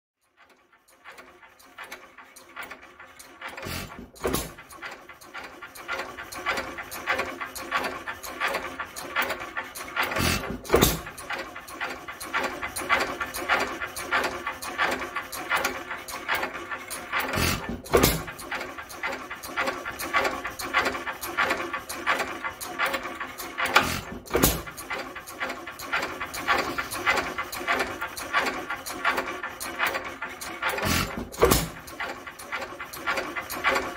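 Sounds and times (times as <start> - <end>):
rapid clicking of engine mechanism: 0.2 - 33.9
engine firing pops: 10.2 - 11.2, 17.1 - 18.4, 23.6 - 24.8, 30.6 - 32.0.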